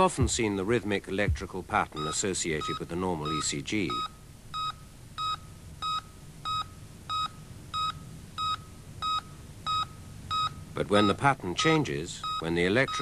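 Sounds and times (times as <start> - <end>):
heart monitor beeping: 2.0 - 13.0.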